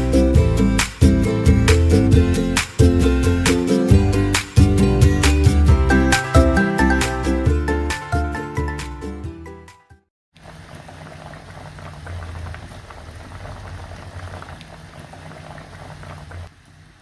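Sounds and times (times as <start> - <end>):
music jingle: 0.0 - 10.0
gravy bubbling in a pot: 10.4 - 17.0.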